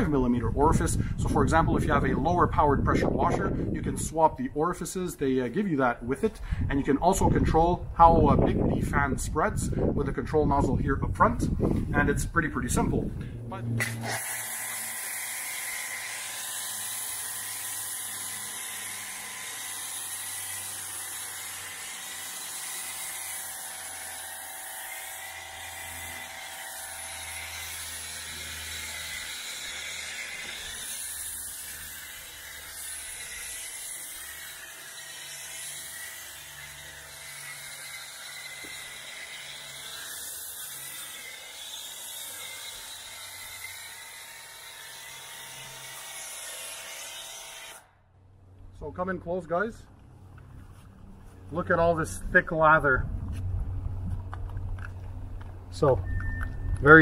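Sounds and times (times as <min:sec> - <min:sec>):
pressure washer motor whine: 0:13.2 - 0:31.0.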